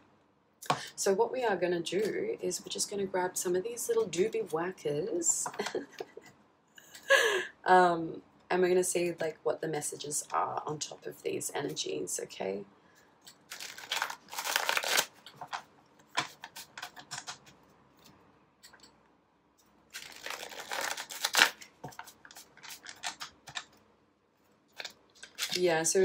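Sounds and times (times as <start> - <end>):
cards being shuffled: 13.5 - 17.6, 20.0 - 23.7, 24.8 - 25.6.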